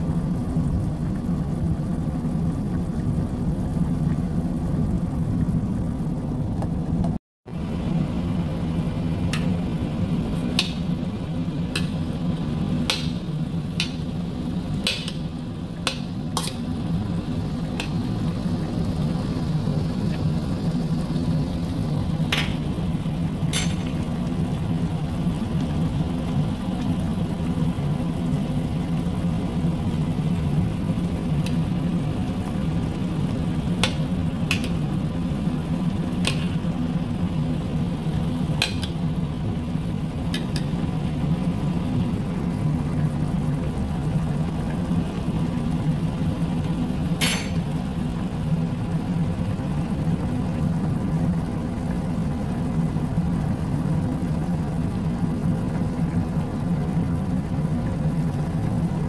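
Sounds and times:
steady low hum: 0:00.0 - 0:59.0
sauce bubbling and popping: 0:09.1 - 0:48.6.

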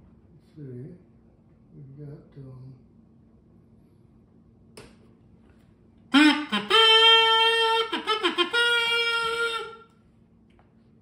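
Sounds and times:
electric kazoo buzzing: 0:06.1 - 0:10.0.

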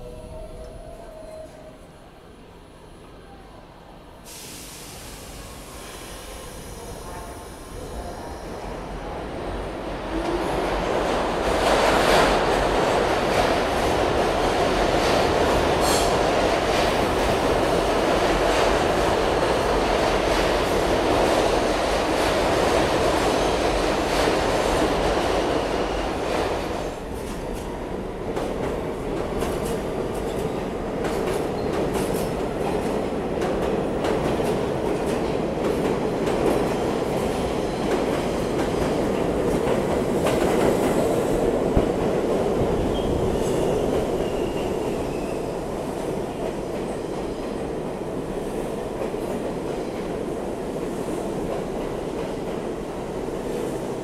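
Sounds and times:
subway train running: 0:00.0 - 0:54.0.

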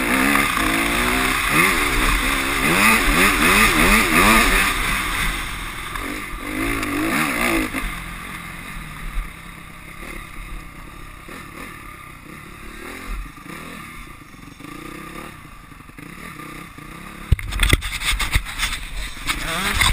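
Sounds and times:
dirt bike engine revving: 0:00.0 - 0:19.9.

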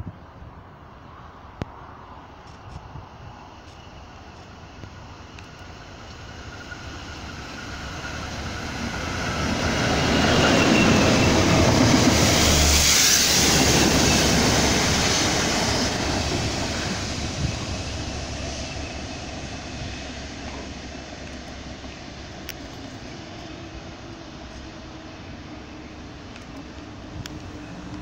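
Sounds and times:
freight train rumbling past: 0:01.0 - 0:28.0.

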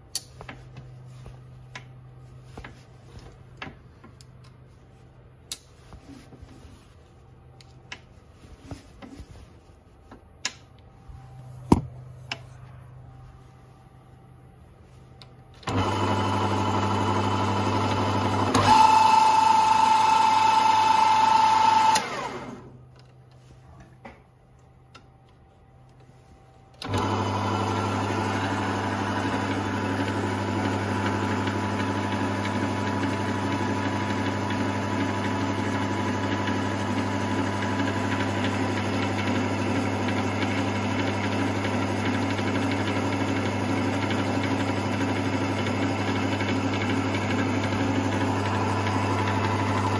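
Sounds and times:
lathe motor running: 0:15.6 - 0:22.6, 0:26.8 - 0:49.9.

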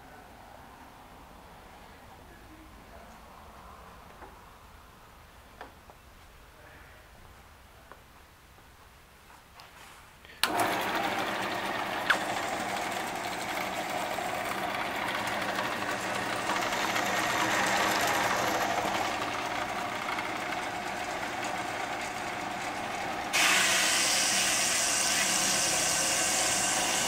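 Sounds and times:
bandsaw motor and blade running: 0:10.4 - 0:27.0.

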